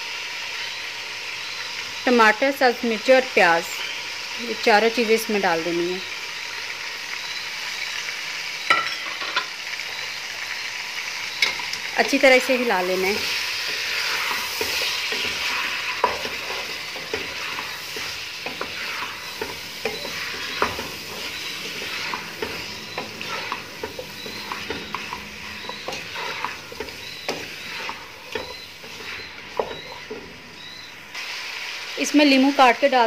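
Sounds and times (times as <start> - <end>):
food sizzling in pot: 0.0 - 33.0
wooden spatula scraping pot: 13.2 - 30.4.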